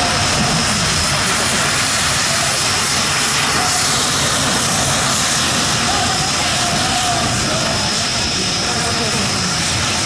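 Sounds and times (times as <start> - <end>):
high steady whine: 0.0 - 10.0
jet engine rushing: 0.0 - 10.0.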